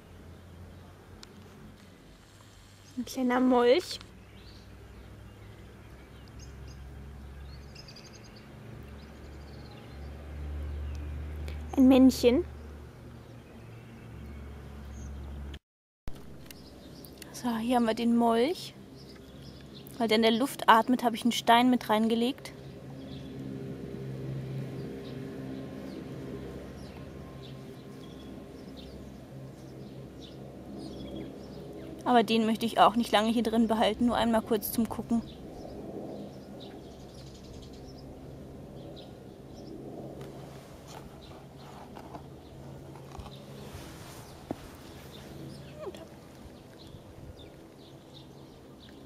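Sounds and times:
small birds chirping: 0:02.6 - 0:15.6, 0:16.2 - 0:23.5, 0:24.7 - 0:39.9, 0:40.8 - 0:49.0
distant motor hum: 0:16.2 - 0:49.0.

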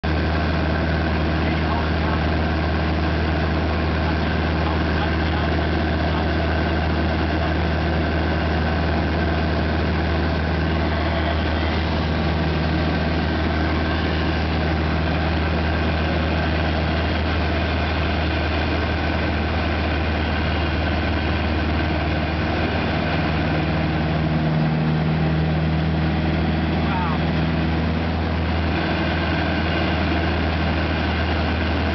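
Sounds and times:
light aircraft engine droning: 0:00.0 - 0:31.9.

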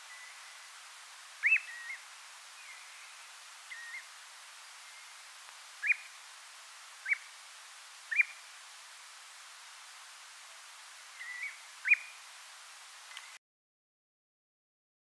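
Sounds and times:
background hiss: 0:00.0 - 0:13.4
plover whistling calls: 0:01.4 - 0:02.0, 0:02.6 - 0:04.1, 0:05.8 - 0:06.2, 0:07.0 - 0:07.3, 0:08.1 - 0:08.4, 0:11.1 - 0:12.2.

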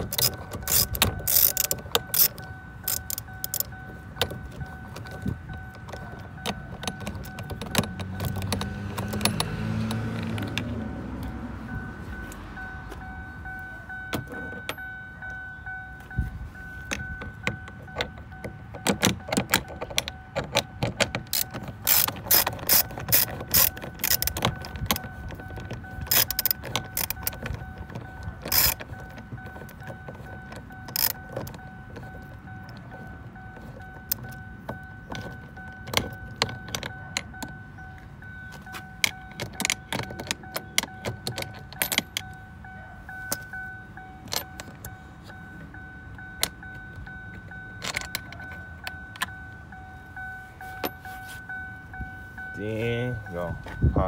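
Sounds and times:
ratchet wrench clicking: 0:00.0 - 0:10.6, 0:16.9 - 0:37.6
faint steady high tone: 0:11.6 - 0:19.3, 0:25.0 - 0:54.0.

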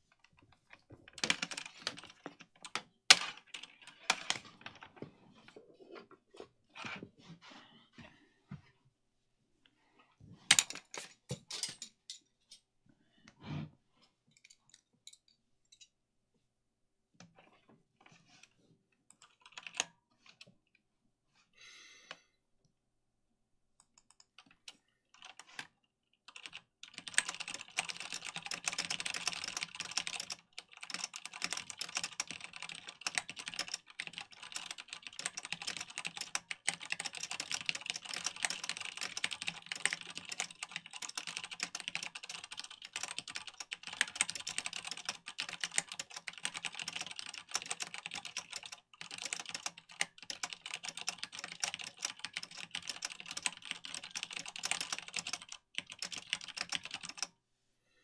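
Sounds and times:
mechanical keyboard typing: 0:01.1 - 0:04.9, 0:19.1 - 0:19.9, 0:23.9 - 0:25.7, 0:26.3 - 0:57.3.

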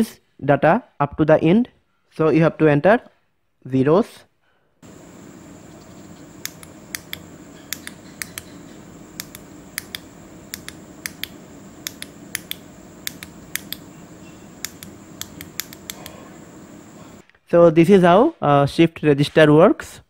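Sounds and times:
push-button switches clicking: 0:06.3 - 0:14.0, 0:14.6 - 0:16.3.

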